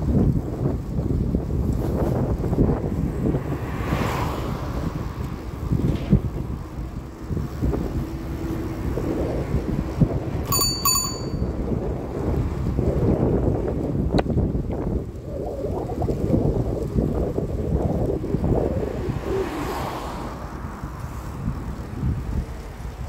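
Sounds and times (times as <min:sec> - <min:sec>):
wind buffeting microphone: 0:00.0 - 0:23.0
bicycle bell dinging: 0:10.4 - 0:11.7.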